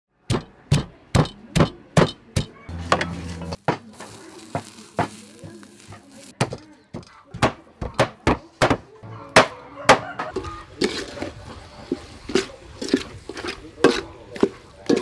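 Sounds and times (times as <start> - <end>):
pestle pounding in a mortar: 0.3 - 3.0, 12.0 - 15.0.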